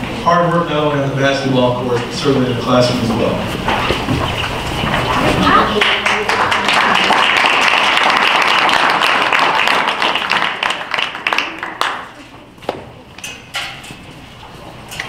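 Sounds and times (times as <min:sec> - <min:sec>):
audience applauding: 0:05.0 - 0:12.6.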